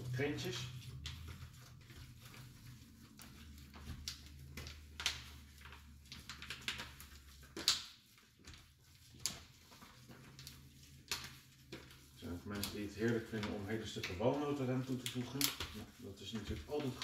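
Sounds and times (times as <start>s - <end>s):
hands squishing minced meat: 0.0s - 17.0s.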